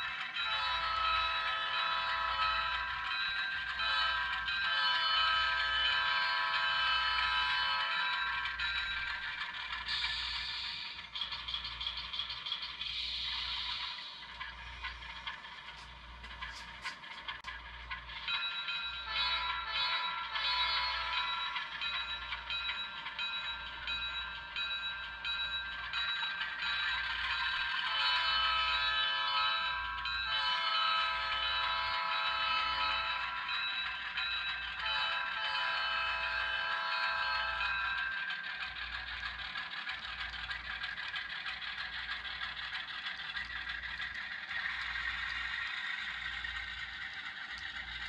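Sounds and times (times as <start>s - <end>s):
locomotive bell ringing: 0.0s - 11.1s, 17.5s - 48.0s
multi-tone train horn: 0.4s - 2.7s, 3.8s - 8.1s, 19.0s - 21.3s, 27.9s - 29.6s, 30.2s - 33.3s, 34.8s - 37.8s.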